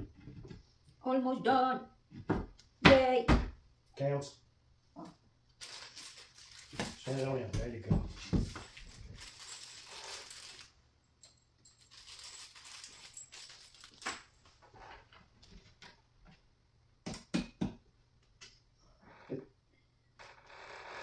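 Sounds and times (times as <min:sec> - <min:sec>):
furniture parts rustling: 0:05.7 - 0:15.9.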